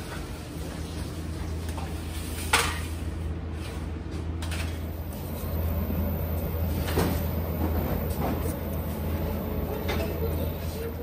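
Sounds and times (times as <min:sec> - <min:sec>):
bakery machinery hum: 0:00.0 - 0:11.0.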